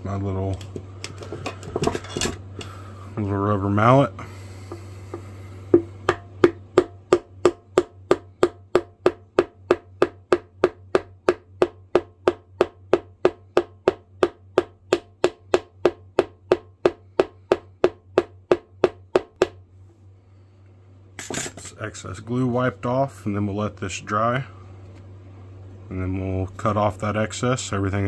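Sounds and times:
rubber mallet tapping wood: 4.7s - 19.6s.

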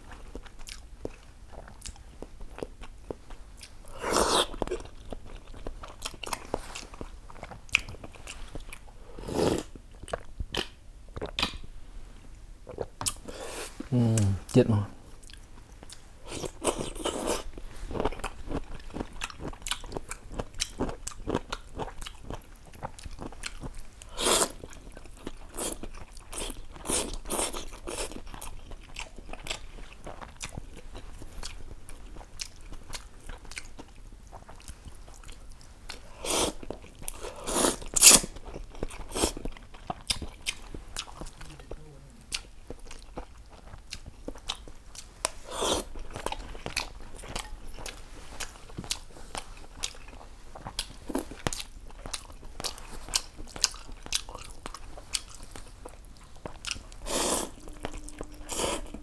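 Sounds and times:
wet chewing: 15.2s - 41.5s, 42.3s - 59.0s
noodle slurping: 57.0s - 59.0s.

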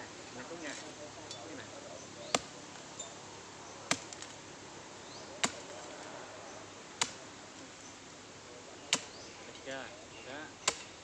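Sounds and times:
hoe chopping into earth: 3.9s - 4.3s, 5.4s - 5.8s, 8.9s - 9.2s, 10.6s - 10.9s.

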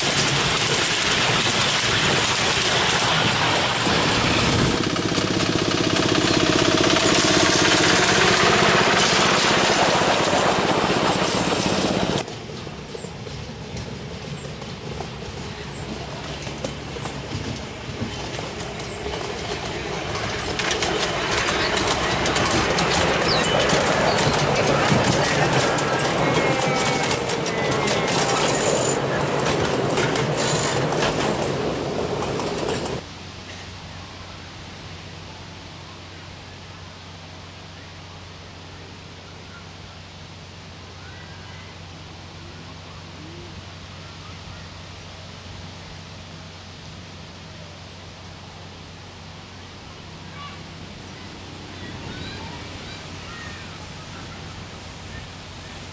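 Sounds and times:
wheels clicking over rail joints: 0.0s - 33.7s
rushing hiss: 0.0s - 40.0s
miniature steam locomotive: 0.0s - 55.9s.

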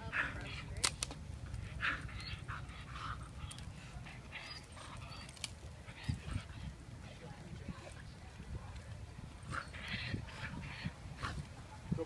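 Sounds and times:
dog breathy noises: 1.5s - 7.3s, 9.4s - 11.6s.

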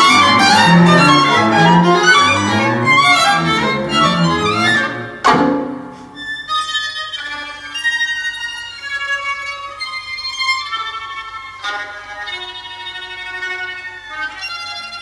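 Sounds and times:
plucked string entry: 0.0s - 6.0s
bowed string music: 0.0s - 15.0s.

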